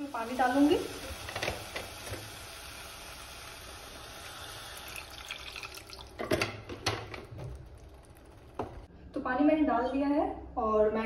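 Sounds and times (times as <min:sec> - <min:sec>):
water pouring into pan: 0:00.8 - 0:06.3.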